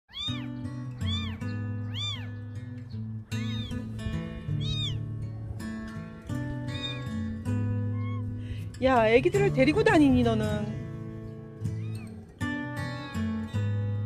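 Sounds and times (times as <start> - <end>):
cat meowing: 0.1 - 2.5, 3.3 - 3.9, 4.5 - 5.1, 6.6 - 8.4, 11.7 - 12.2.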